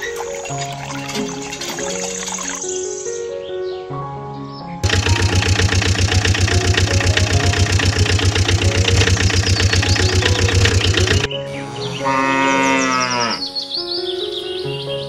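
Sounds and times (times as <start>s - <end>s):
truck engine knocking: 4.8s - 11.3s.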